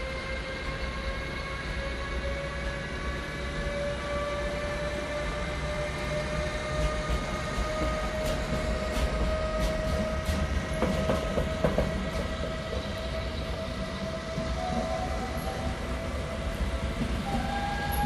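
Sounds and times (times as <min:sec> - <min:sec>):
electric locomotive tone: 0:00.0 - 0:18.0
train rumble: 0:00.0 - 0:18.0
wheels clicking on track: 0:06.7 - 0:13.7.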